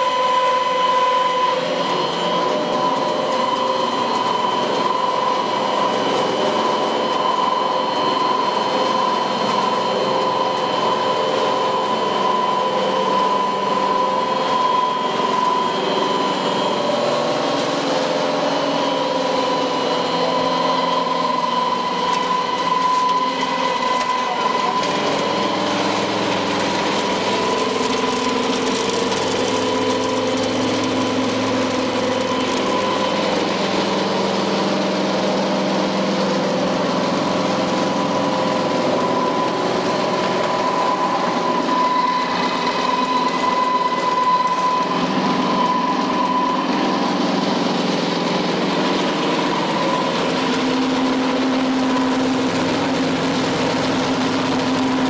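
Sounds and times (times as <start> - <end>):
machine hum and whine: 0.0 - 55.0.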